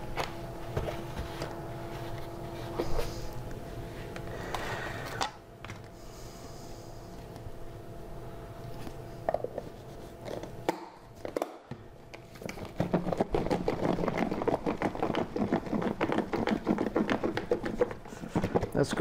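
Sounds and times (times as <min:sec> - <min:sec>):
container rattling as shaken: 0:12.6 - 0:19.0.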